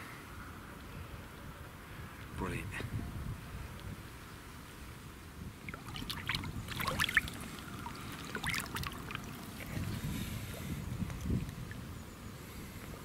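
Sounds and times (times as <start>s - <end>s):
water splashing and trickling: 5.6s - 10.2s.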